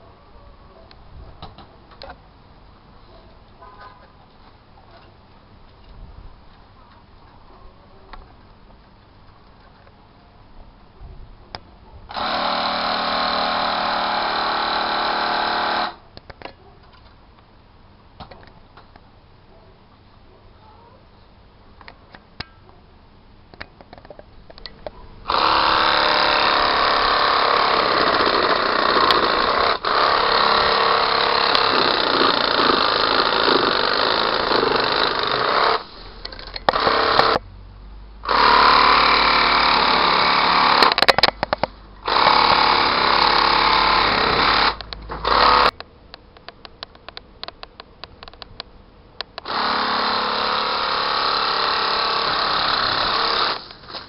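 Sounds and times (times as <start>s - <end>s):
pole saw motor running: 12.1s - 16.0s, 25.3s - 35.9s, 36.7s - 37.4s, 38.2s - 41.0s, 42.0s - 45.7s, 49.4s - 53.6s
scattered clicks: 44.8s - 49.5s.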